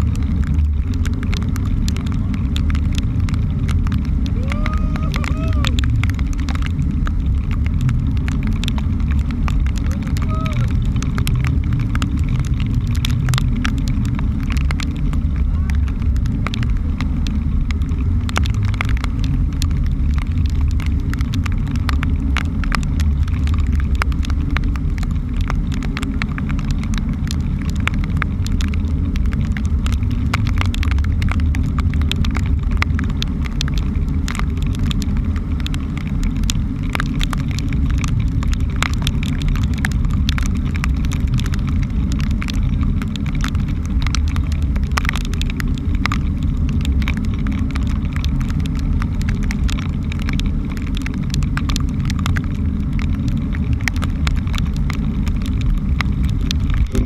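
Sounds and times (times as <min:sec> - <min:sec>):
boat engine low rumble: 0:00.0 - 0:57.0
raindrops and spray striking camera: 0:00.0 - 0:57.0.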